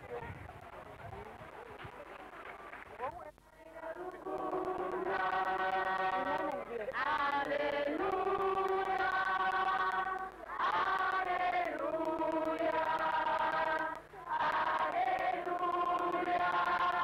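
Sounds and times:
voices singing without instruments: 3.6s - 17.0s.

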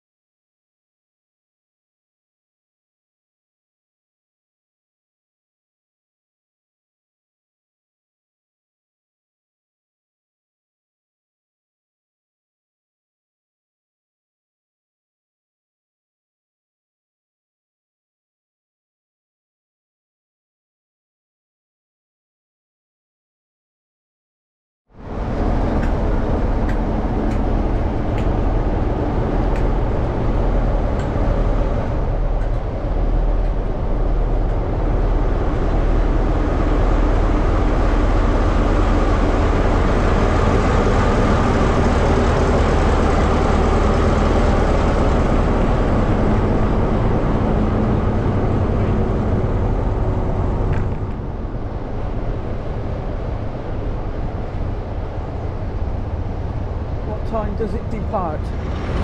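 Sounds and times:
diesel locomotive engine drone: 24.9s - 59.0s.

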